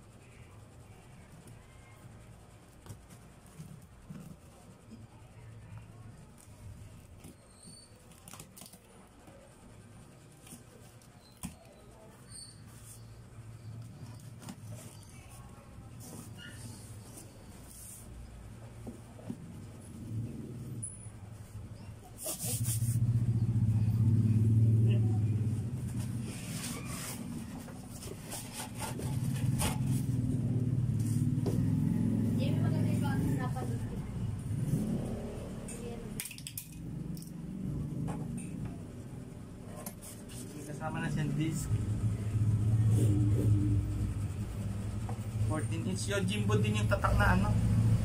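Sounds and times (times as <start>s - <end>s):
knife scraping cardboard: 26.0s - 30.1s.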